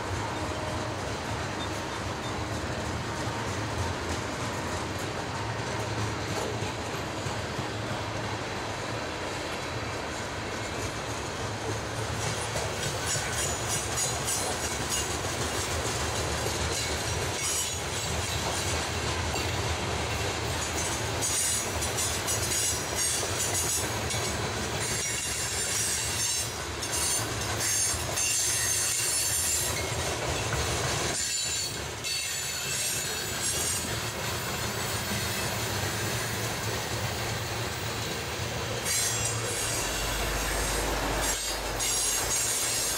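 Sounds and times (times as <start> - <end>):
train wheels rumbling and clicking: 0.0 - 42.9
high-pitched wheel squeal: 38.8 - 42.9.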